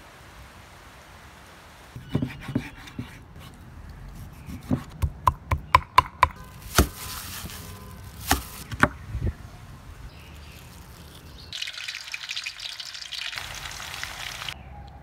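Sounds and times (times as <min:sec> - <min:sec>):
knife chopping on wooden board: 0:02.1 - 0:03.2, 0:04.4 - 0:07.6, 0:08.2 - 0:09.0
rustling: 0:06.4 - 0:08.9, 0:10.1 - 0:11.6.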